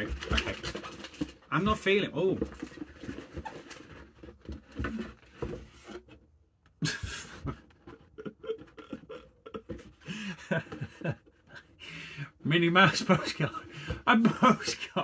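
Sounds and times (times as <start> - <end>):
paper and cardboard rustling: 0.0 - 6.2, 12.8 - 15.0
man laughing: 6.8 - 11.8, 13.0 - 15.0.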